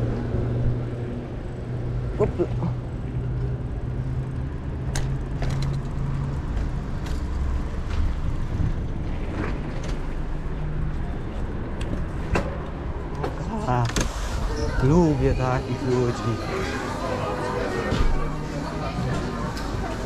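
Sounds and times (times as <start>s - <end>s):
bike rattling: 2.8s - 10.2s.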